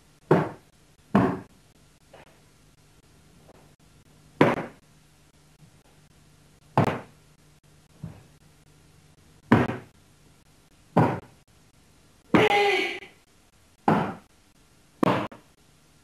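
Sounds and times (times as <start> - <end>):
bare feet stamping on wooden floor: 0.3 - 1.5, 4.4 - 4.8, 6.8 - 7.1, 9.4 - 9.9, 11.0 - 11.3.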